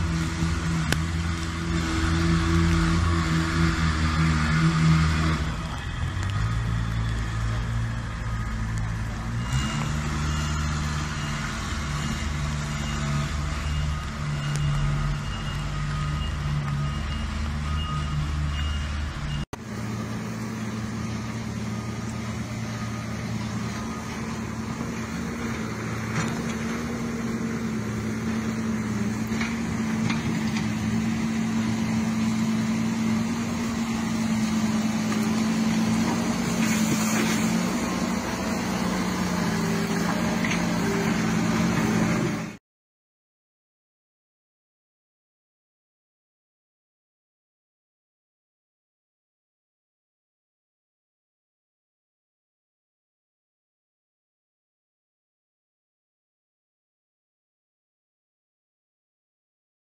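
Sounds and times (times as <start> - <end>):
loader engine even hum: 0.0 - 42.6
wheel loader diesel engine running: 0.0 - 42.6.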